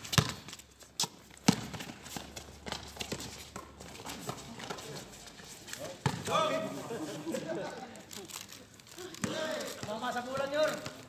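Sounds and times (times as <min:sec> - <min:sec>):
basketball bouncing on court: 0:00.0 - 0:04.8, 0:06.0 - 0:06.4, 0:09.2 - 0:11.0
footsteps of players running: 0:00.0 - 0:11.0.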